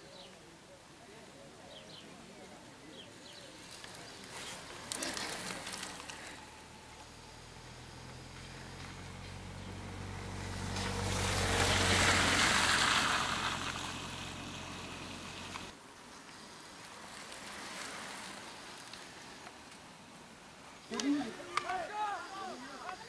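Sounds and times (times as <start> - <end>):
faint outdoor noise: 0.0 - 23.0
vehicle engine hum: 3.4 - 15.8.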